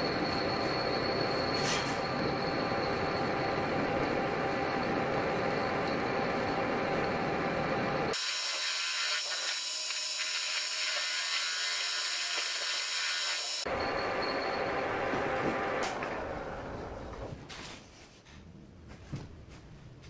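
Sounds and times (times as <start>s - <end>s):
metal lathe humming: 0.5s - 17.0s.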